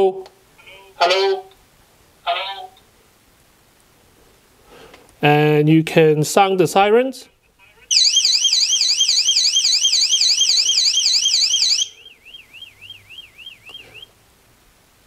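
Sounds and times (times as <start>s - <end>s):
warbling electronic siren: 7.9s - 14.1s.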